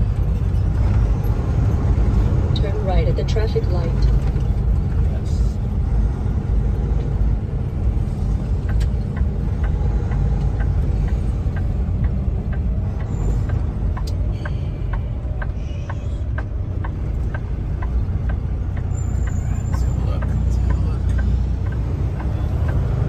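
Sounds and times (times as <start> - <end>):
diesel engine and road rumble: 0.0 - 23.0
turn signal clicking: 6.9 - 23.0.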